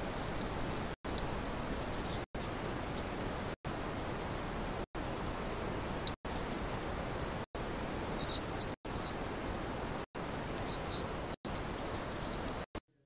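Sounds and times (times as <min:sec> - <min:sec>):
steady hiss: 0:00.0 - 0:12.7
hedgehogs squeaking: 0:02.9 - 0:03.8, 0:07.3 - 0:09.1, 0:10.6 - 0:11.4.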